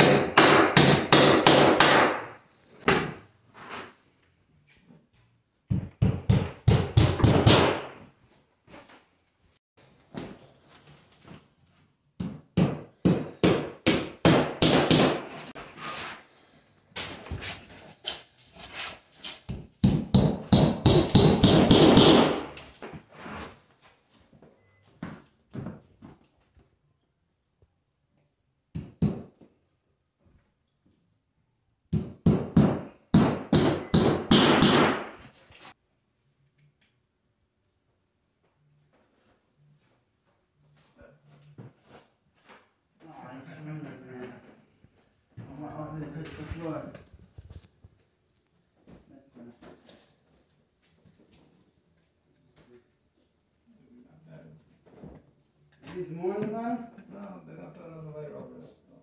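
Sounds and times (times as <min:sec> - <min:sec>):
hammer striking nails: 0:00.0 - 0:03.1, 0:05.7 - 0:08.0, 0:12.2 - 0:15.5, 0:19.5 - 0:22.6, 0:28.7 - 0:29.3, 0:31.9 - 0:35.3.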